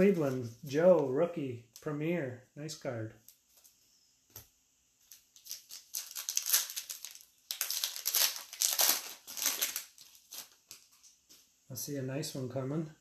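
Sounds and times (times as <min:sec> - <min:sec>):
wrapper crinkling: 0:05.1 - 0:11.2.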